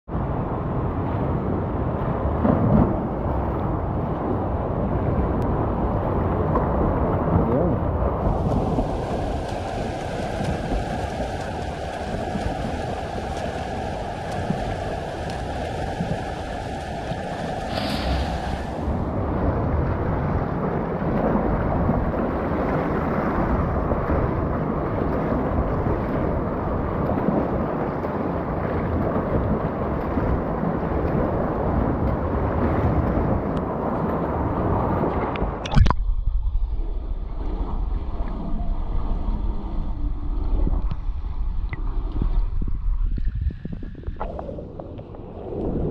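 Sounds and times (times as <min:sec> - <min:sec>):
muffled underwater rumble: 0:00.1 - 0:45.9
water splashing from swimming strokes: 0:08.2 - 0:36.2.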